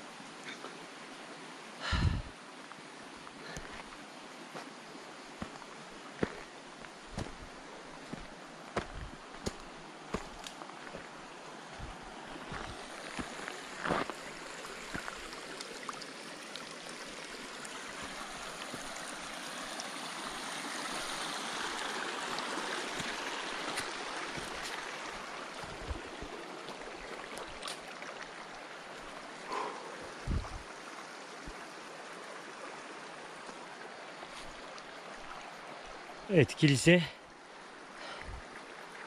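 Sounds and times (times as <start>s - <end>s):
mountain stream rushing: 0.0s - 39.0s.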